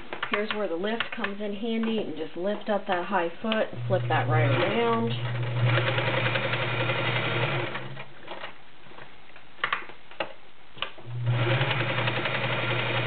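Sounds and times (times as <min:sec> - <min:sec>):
sewing machine running: 0:03.8 - 0:08.0, 0:11.1 - 0:13.0.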